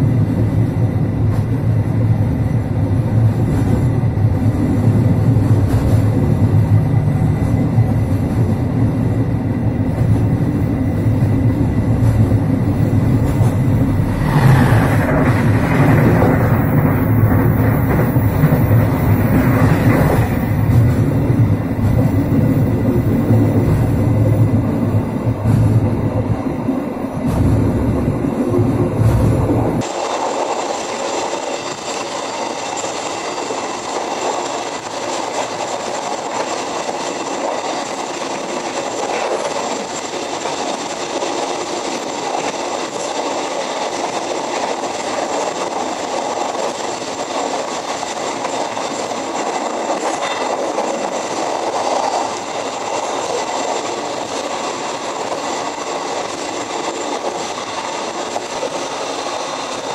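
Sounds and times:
train wheels rumbling on rail: 0.0s - 59.9s
clacks over rail joints: 9.9s - 27.7s, 31.6s - 59.9s.

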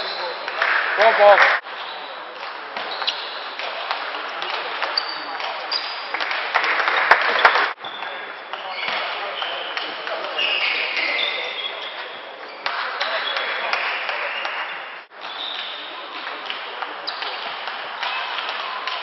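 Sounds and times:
people clapping: 0.5s - 1.6s, 5.4s - 7.8s, 12.7s - 14.7s.

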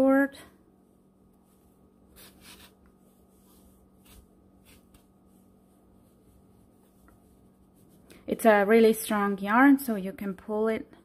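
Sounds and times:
yarn rustling through stitches: 0.8s - 9.3s.

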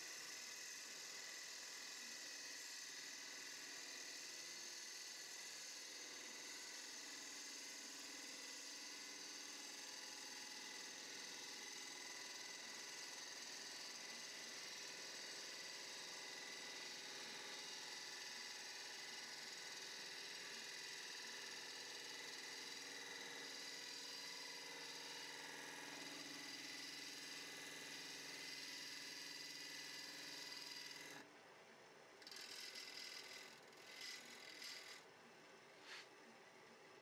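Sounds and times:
wood lathe whirring: 0.0s - 31.3s, 32.2s - 35.1s
gouge shaving wood: 30.4s - 31.2s, 32.2s - 35.0s.

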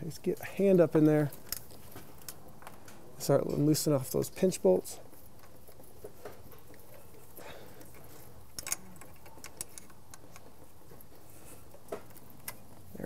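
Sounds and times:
metal clicks and ticks: 7.8s - 11.1s.

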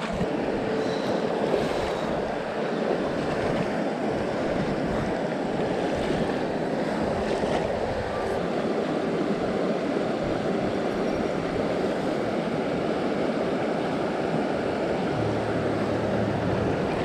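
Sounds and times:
river water rushing over stones: 11.3s - 17.0s.

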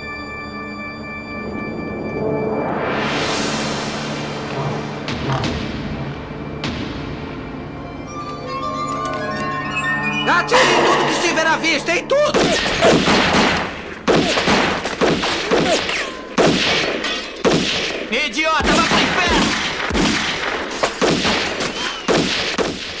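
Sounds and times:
people shouting: 12.2s - 13.1s
gunfire: 12.3s - 23.0s.

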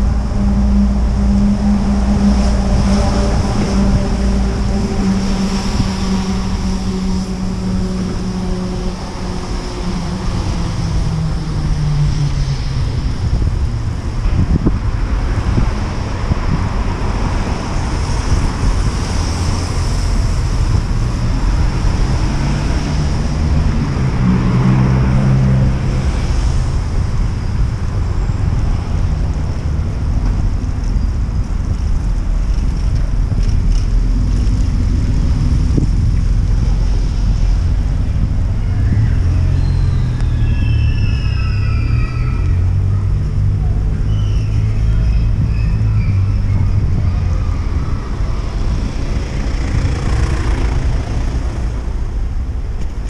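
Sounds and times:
high squeal gliding downward: 0.0s - 14.1s, 38.4s - 49.8s
engine passing: 0.0s - 52.6s
street traffic noise: 0.0s - 53.0s
wind rumbling on microphone: 0.0s - 53.0s.

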